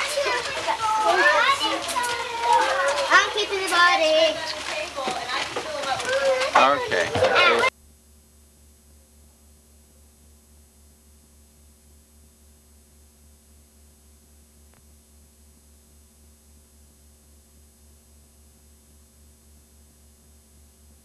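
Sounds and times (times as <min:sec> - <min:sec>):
videotape hum and hiss: 0:00.0 - 0:21.0.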